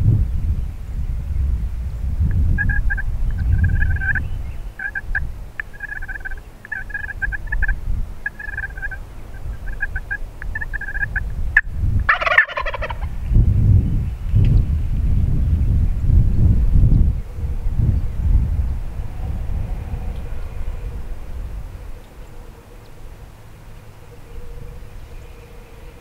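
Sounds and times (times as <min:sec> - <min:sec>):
wind rumble on microphone: 0:00.0 - 0:26.0
short repeated turkey calls: 0:02.3 - 0:13.1
turkey gobbling: 0:02.3 - 0:13.1.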